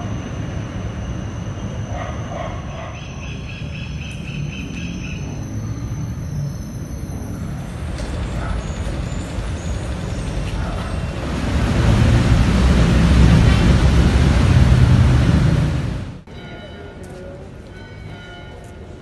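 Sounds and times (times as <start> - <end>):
heavy vehicle engine rumble: 4.1 - 16.3.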